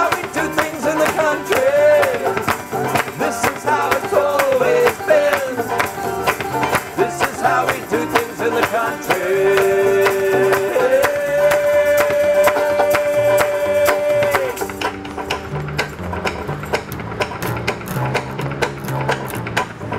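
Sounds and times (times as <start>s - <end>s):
voices holding a long note: 0.0s - 14.7s
hand claps: 0.0s - 15.4s
banjos playing: 0.0s - 19.9s
upright bass: 0.0s - 19.9s.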